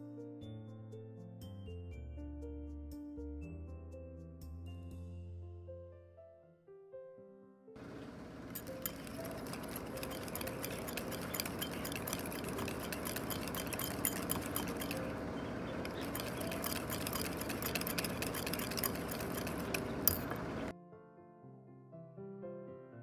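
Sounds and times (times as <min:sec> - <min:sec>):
whisk clinking against bowl: 0:08.0 - 0:20.7.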